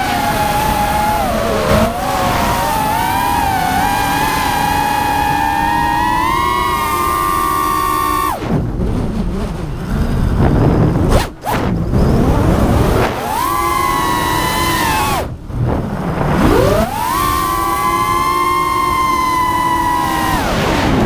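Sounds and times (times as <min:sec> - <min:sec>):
drone motors whining: 0:00.0 - 0:21.0
wind and prop wash rumble: 0:07.3 - 0:21.0.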